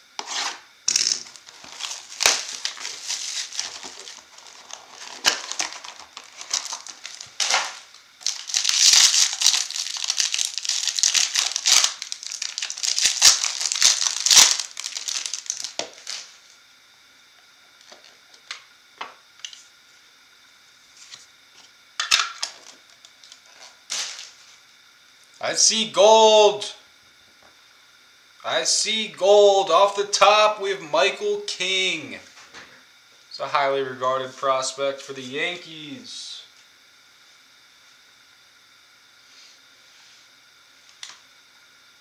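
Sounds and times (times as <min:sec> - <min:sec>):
foil pack crinkling and tearing: 0:00.9 - 0:16.5, 0:22.0 - 0:24.4.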